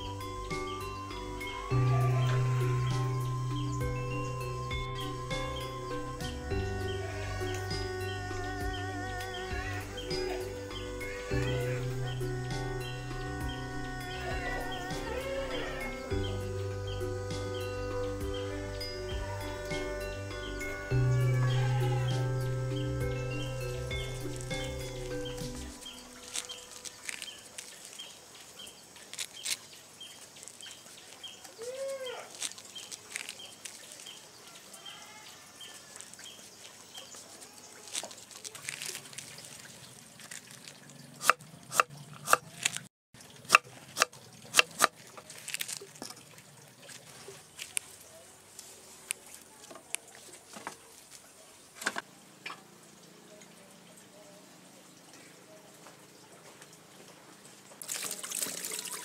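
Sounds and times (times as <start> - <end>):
faint high chirping: 0.0 - 29.6
birds calling: 0.0 - 42.8
knife chopping on wooden board: 41.2 - 42.5, 43.5 - 44.9.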